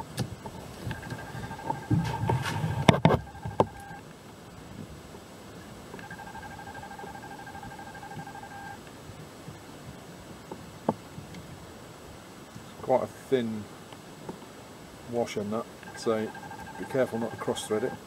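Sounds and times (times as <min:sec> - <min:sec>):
steady electronic tone: 0:00.9 - 0:04.0, 0:06.0 - 0:08.8, 0:15.8 - 0:18.0.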